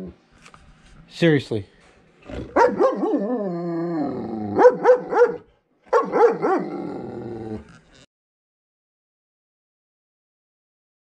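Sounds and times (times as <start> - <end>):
dog barking: 2.5 - 3.4, 4.6 - 6.8.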